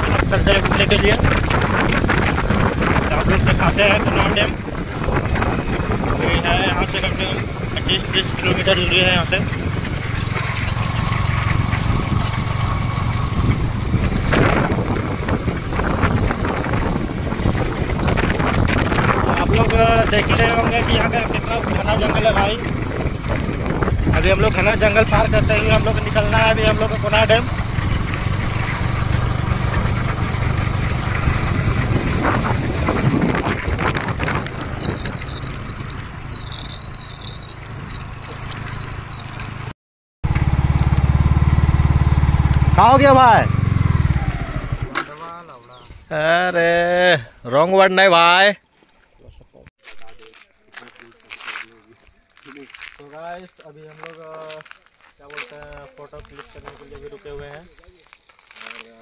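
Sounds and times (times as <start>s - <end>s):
wind noise on microphone: 0.0s - 39.7s
motorcycle engine running: 0.0s - 45.4s.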